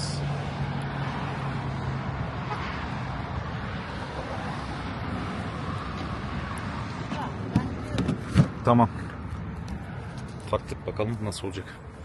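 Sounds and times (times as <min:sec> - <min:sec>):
passing road traffic: 0:00.0 - 0:12.0.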